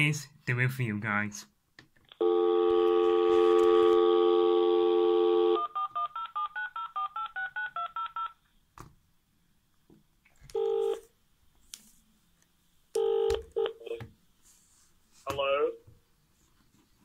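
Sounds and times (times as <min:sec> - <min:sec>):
telephone dial tone: 0:02.2 - 0:08.3, 0:10.5 - 0:11.0, 0:13.0 - 0:14.0
telephone ringing tone: 0:02.2 - 0:08.4, 0:10.5 - 0:11.1, 0:13.0 - 0:14.0.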